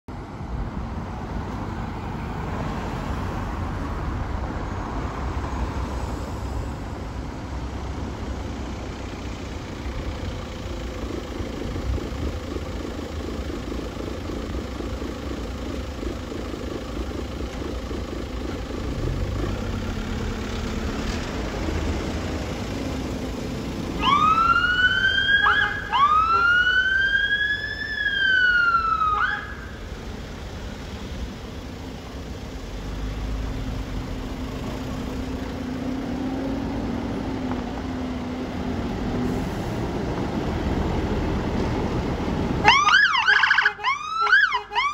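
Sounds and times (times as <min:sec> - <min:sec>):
road traffic: 0:00.0 - 0:44.9
car engines idling: 0:00.1 - 0:44.9
fire engine siren wailing: 0:23.9 - 0:29.9, 0:42.6 - 0:44.9.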